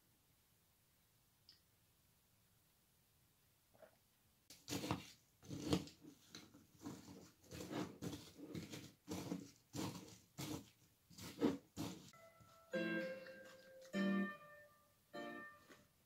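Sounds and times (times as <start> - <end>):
spoon stirring granola in bowl: 4.5 - 12.5.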